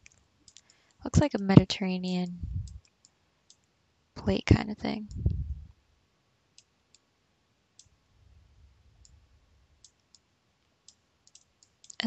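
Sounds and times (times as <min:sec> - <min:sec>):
computer mouse clicking: 0:00.0 - 0:00.8, 0:10.9 - 0:12.0.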